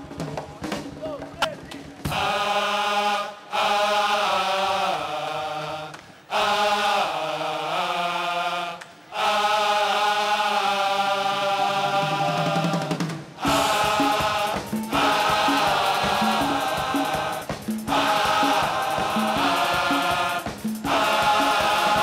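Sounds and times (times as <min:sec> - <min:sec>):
male chorus singing in unison: 0:02.0 - 0:22.0.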